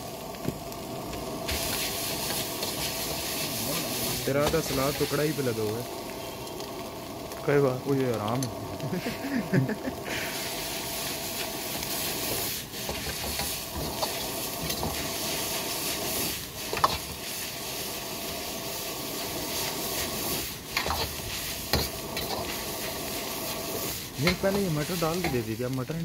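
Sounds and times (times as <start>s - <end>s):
noodles sizzling in wok: 0.0s - 26.0s
metal ladle scraping wok: 1.5s - 5.4s, 10.4s - 25.5s.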